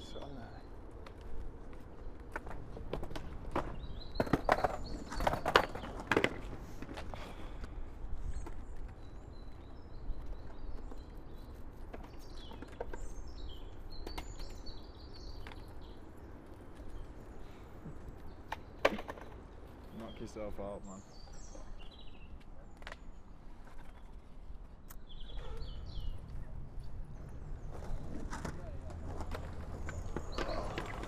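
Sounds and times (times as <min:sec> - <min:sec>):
faint bird chirps: 0:24.8 - 0:27.2.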